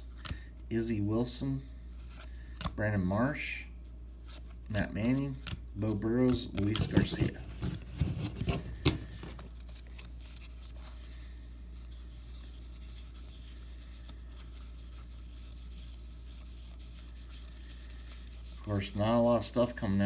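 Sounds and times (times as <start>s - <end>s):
low steady hum: 0.0s - 20.0s
cards sliding and flicking: 4.2s - 11.0s.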